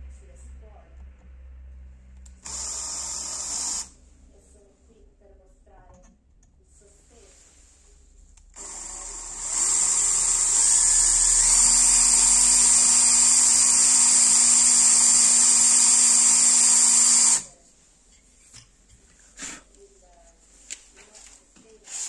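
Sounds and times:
cordless drill on metal: 2.4s - 3.9s, 8.6s - 17.5s.

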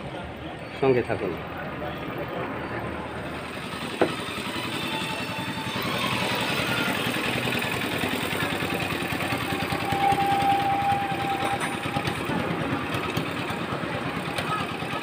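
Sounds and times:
engine running with rapid pulse: 3.0s - 15.0s.

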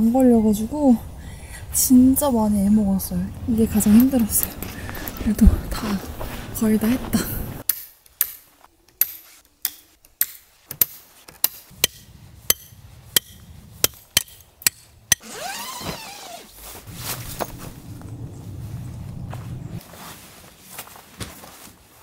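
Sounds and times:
squeaky scrape: 15.2s - 19.8s.

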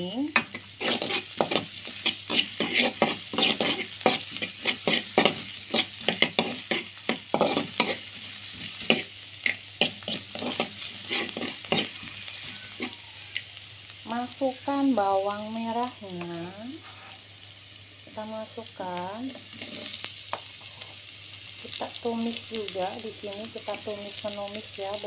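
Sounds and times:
garlic sizzling in oil: 0.0s - 25.0s
metal spatula scraping wok: 0.4s - 13.0s, 19.3s - 20.1s.

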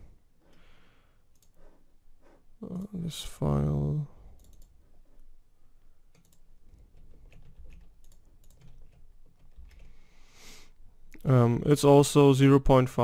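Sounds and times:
keyboard clicks: 4.4s - 4.8s, 6.1s - 9.9s.

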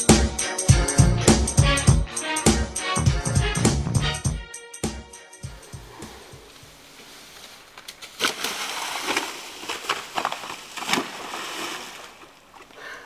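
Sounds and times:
dry leaves crunching underfoot: 5.6s - 12.6s.

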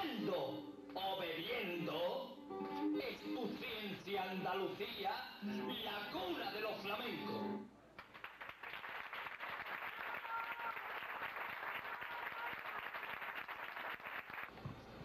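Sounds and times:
audience applauding: 8.0s - 14.6s.

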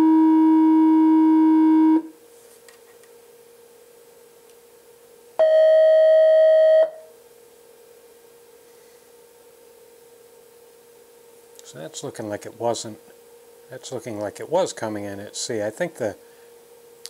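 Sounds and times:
oscillator tone: 0.0s - 2.1s.

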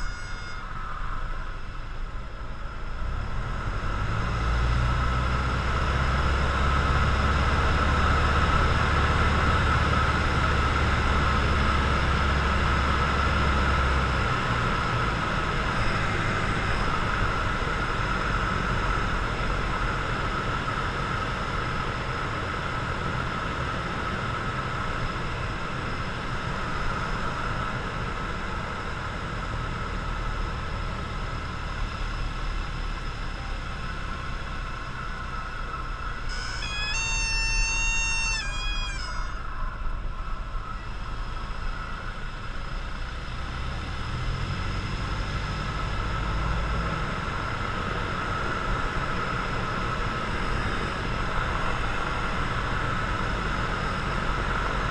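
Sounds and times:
propeller plane engine droning: 0.0s - 54.9s
deeper engine note: 29.0s - 54.9s.

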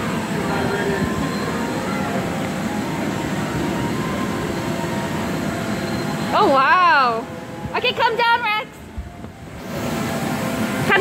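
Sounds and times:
faint voices: 0.0s - 4.2s
electric air blower running: 9.4s - 11.0s.

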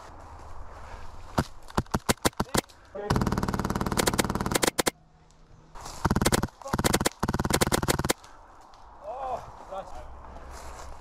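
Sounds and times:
airsoft gun full-auto bursts: 1.7s - 4.9s, 6.0s - 8.2s.

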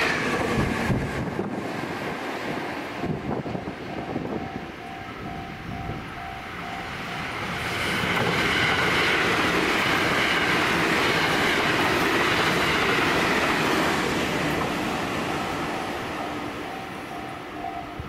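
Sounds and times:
electric train passing: 0.0s - 18.0s
level crossing bell ringing: 3.9s - 7.5s, 15.9s - 18.0s.

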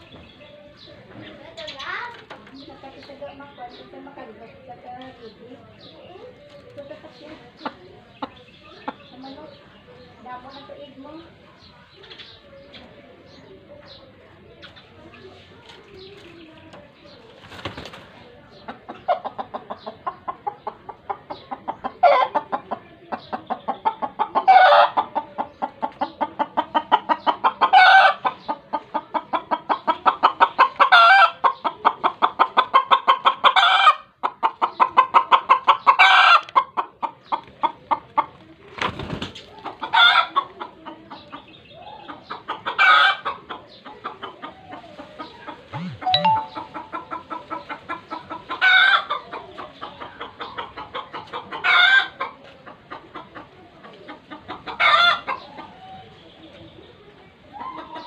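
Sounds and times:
hen clucking rapidly: 18.5s - 38.5s, 39.3s - 55.8s.

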